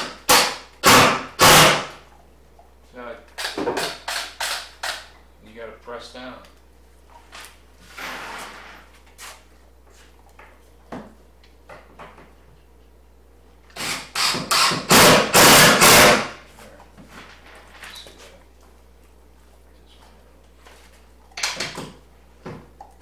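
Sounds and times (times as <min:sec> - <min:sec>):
drill driving screws into wood: 0:00.0 - 0:02.0, 0:03.4 - 0:05.1, 0:13.7 - 0:16.4.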